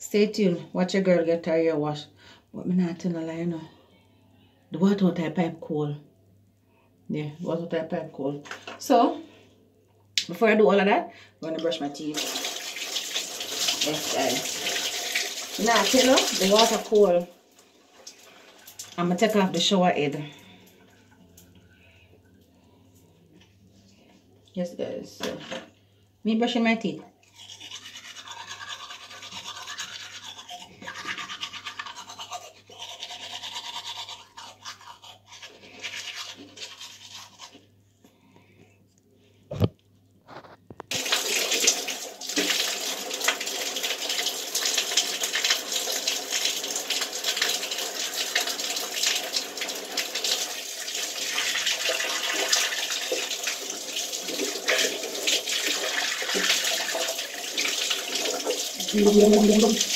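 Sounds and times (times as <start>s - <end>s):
water pouring from pipe: 12.1s - 17.2s, 17.9s - 19.0s, 40.9s - 59.9s
toothbrush scrubbing teeth: 13.5s - 17.2s, 27.2s - 37.7s, 51.2s - 59.9s.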